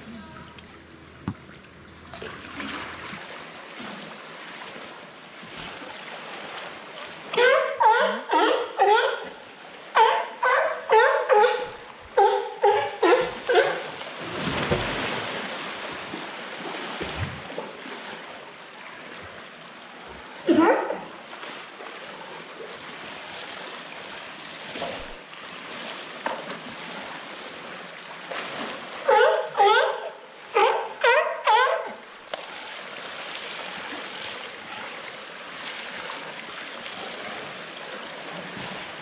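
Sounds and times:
water noise: 0.0s - 39.0s
sea lion barking: 7.4s - 9.4s, 10.0s - 14.0s, 20.4s - 21.1s, 29.0s - 32.1s.

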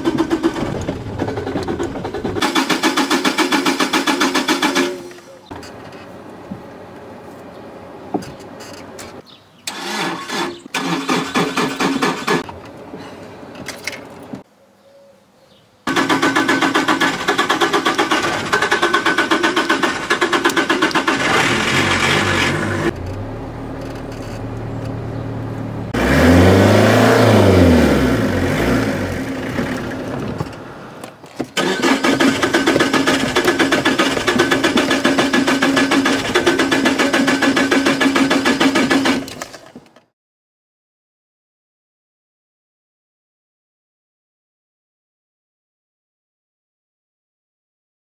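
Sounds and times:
car starter cranking: 0.0s - 5.0s, 9.7s - 12.5s, 15.9s - 24.4s, 31.6s - 39.6s
car engine revving: 15.9s - 30.2s.

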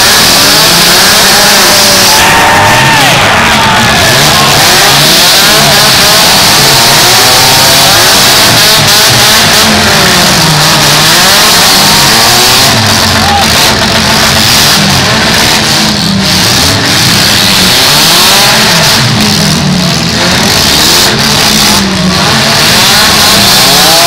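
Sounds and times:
car engines revving hard: 0.0s - 24.0s.

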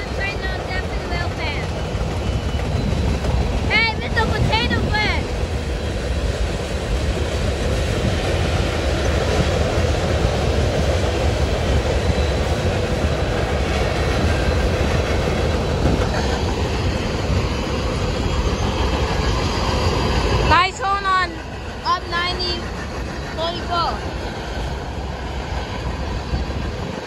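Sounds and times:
train wheels rumbling on rails: 0.0s - 27.0s.

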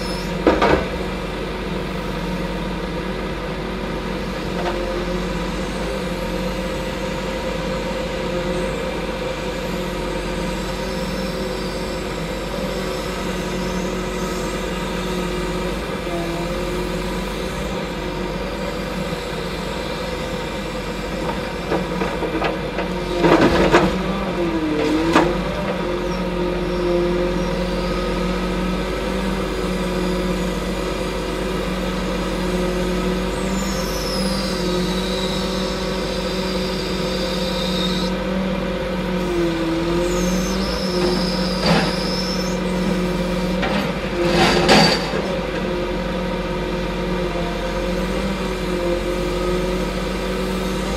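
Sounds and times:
crane engine running: 0.0s - 50.9s.

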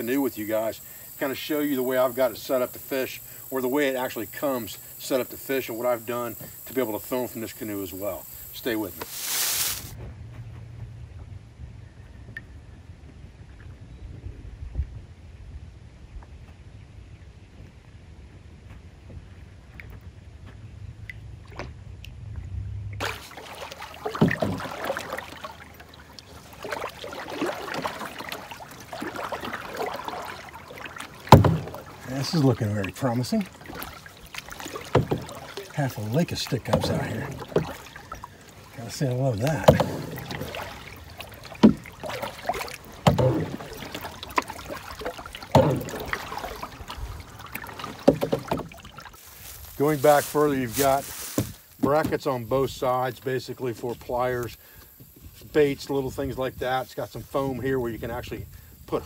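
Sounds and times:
water lapping against canoe hull: 0.0s - 13.8s, 16.2s - 59.0s
paddle knocking and splashing: 3.8s - 11.4s, 17.6s - 22.3s, 22.9s - 53.0s
low steady rumble: 10.0s - 26.7s
thump on canoe: 23.0s - 25.6s, 26.5s - 38.2s, 39.4s - 49.1s, 50.7s - 52.3s.

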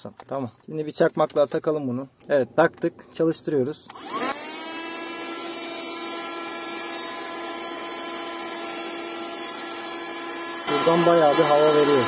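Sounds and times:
handheld vacuum cleaner whine: 3.9s - 12.0s.

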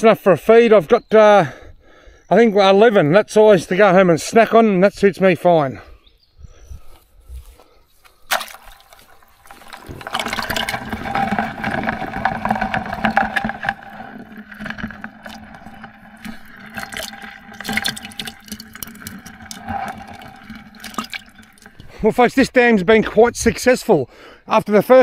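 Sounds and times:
water splashing in bucket: 8.3s - 22.2s.

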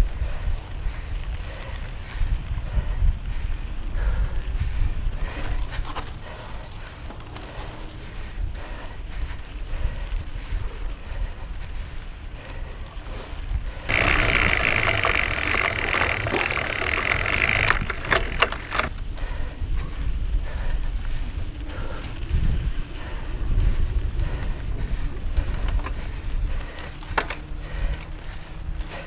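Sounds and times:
wind buffeting microphone: 0.0s - 29.0s
tyres rumbling over dirt: 13.1s - 19.3s
sharp clicks: 13.8s - 19.1s
hissing rattle: 13.9s - 19.0s.

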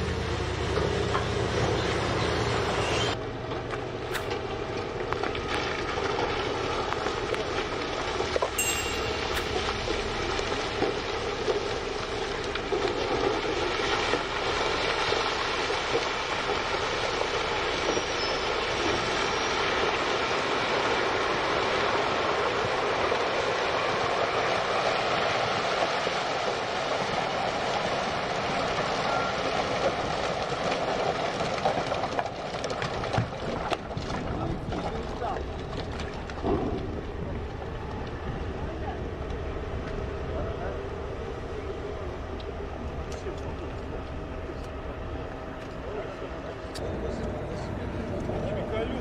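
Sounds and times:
rock pouring and sliding: 4.8s - 37.6s.

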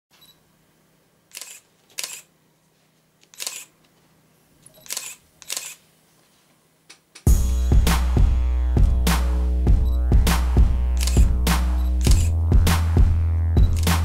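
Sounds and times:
camera shutter clicking: 1.3s - 2.3s, 3.3s - 3.7s, 4.8s - 5.8s, 11.0s - 11.3s, 11.9s - 12.3s, 13.7s - 14.0s.

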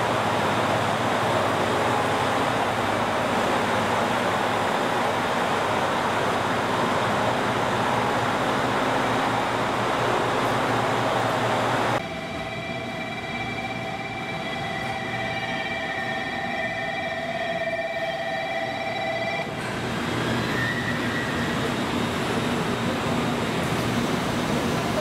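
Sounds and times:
broad rushing noise: 0.0s - 12.2s
electric train whine: 0.0s - 25.0s.

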